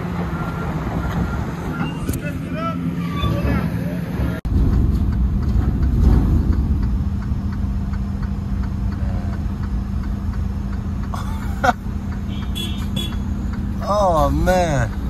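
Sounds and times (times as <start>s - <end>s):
diesel truck engine running: 0.0s - 15.0s
faint regular ticking: 4.7s - 15.0s.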